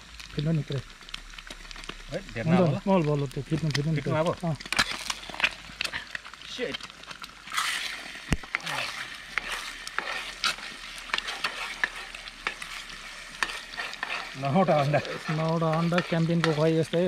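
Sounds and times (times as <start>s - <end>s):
eggs sizzling in a frying pan: 0.0s - 17.0s
man speaking: 2.1s - 4.6s, 14.4s - 17.0s
metal ladle scraping a pan: 4.6s - 6.2s, 7.4s - 17.0s.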